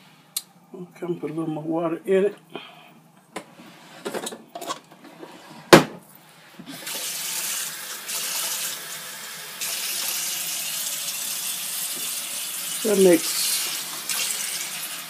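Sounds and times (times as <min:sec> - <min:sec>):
faucet filling container: 0:06.8 - 0:15.0.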